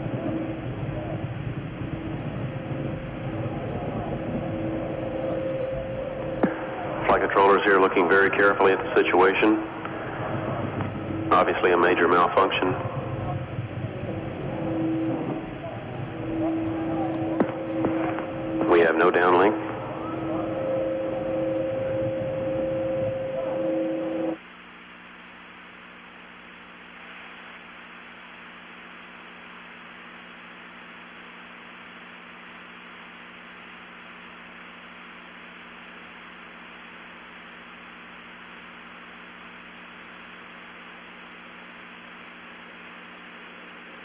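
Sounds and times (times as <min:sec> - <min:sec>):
loud rushing noise with tones: 0:00.0 - 0:24.4
faint low hum: 0:00.0 - 0:44.0
steady hiss: 0:00.0 - 0:44.0.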